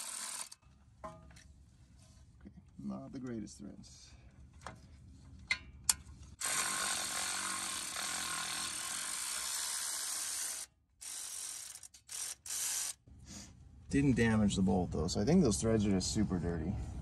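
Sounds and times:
electric ratchet spinning a bolt: 0.0s - 0.6s, 6.4s - 13.0s.

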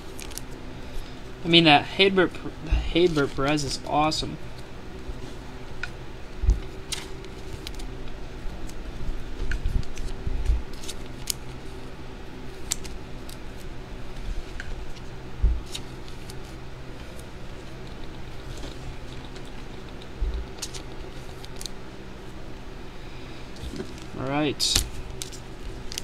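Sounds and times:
cards and foil packs rustling: 0.0s - 1.2s, 3.0s - 4.6s, 6.5s - 8.9s, 9.7s - 21.8s, 23.6s - 26.0s
steady low hum: 0.0s - 26.0s.

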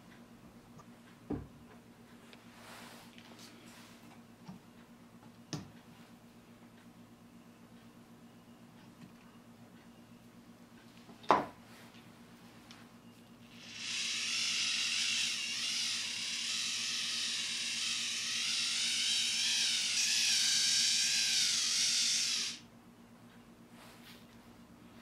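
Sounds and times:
hand-cranked pump whirring: 13.5s - 22.6s.

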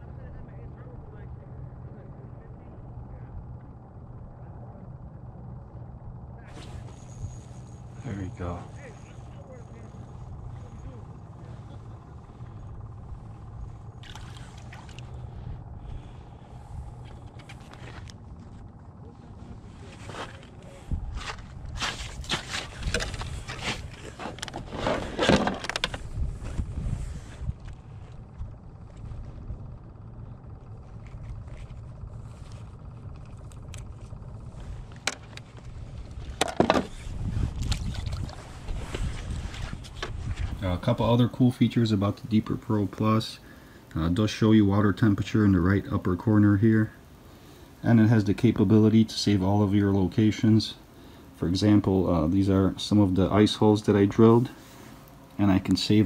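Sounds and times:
plastic sled scraping over ice: 21.9s - 25.9s
wind buffeting microphone: 25.9s - 30.6s, 35.7s - 40.6s.

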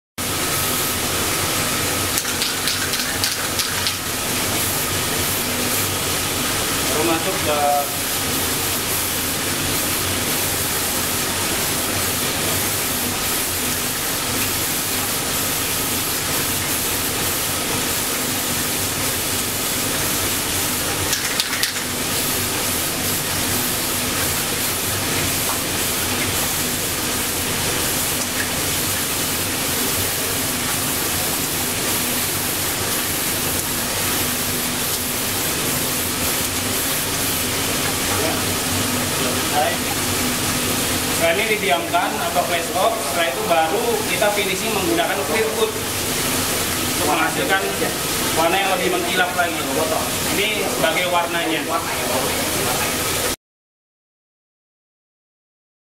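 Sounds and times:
spray paint can hissing: 0.6s - 6.1s, 7.7s - 38.5s.

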